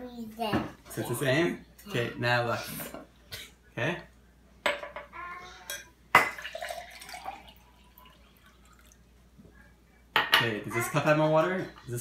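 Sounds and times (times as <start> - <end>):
water pouring into glass: 6.2 - 9.0.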